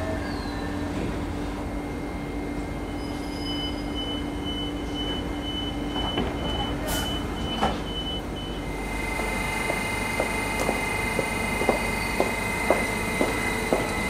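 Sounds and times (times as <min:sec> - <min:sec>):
train door warning beeps: 0:00.0 - 0:14.0
train doors hissing: 0:02.9 - 0:14.0
train doors knocking shut: 0:09.6 - 0:14.0.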